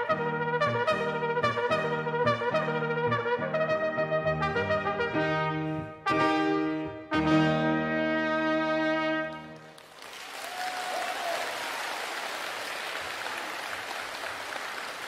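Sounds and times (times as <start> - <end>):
trumpet holding a note: 0.0 - 9.6
audience applauding: 9.6 - 15.0.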